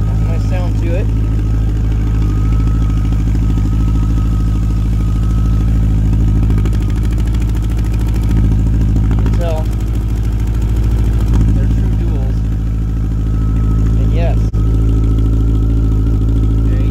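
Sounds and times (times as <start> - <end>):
motorcycle engine idling: 0.0 - 16.9.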